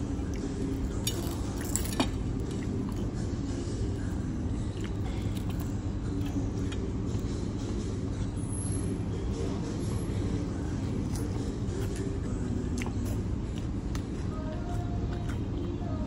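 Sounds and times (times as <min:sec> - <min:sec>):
low background rumble: 0:00.0 - 0:16.0.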